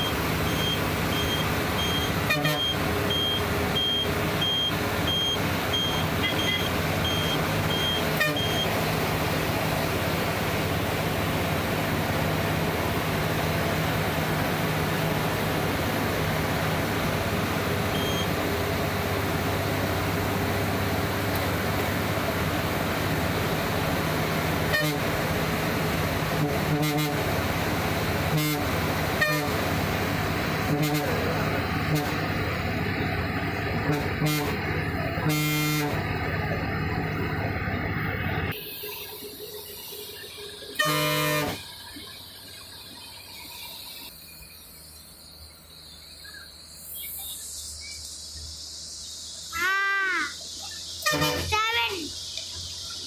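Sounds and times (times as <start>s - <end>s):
bus engine running: 0.0s - 53.0s
short horn toots: 2.2s - 2.8s, 8.1s - 8.7s, 24.7s - 25.1s, 26.3s - 27.3s, 28.3s - 29.6s, 30.6s - 32.3s, 33.8s - 36.1s, 40.8s - 41.6s, 51.0s - 51.6s.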